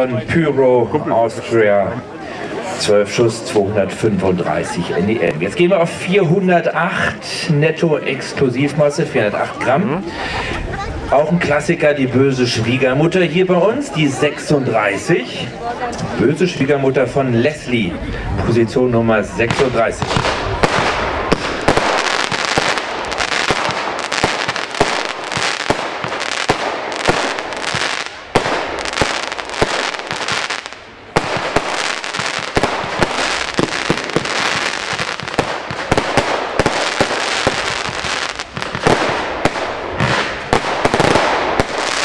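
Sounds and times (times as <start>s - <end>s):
firework battery bangs and crackle: 19.4s - 42.0s.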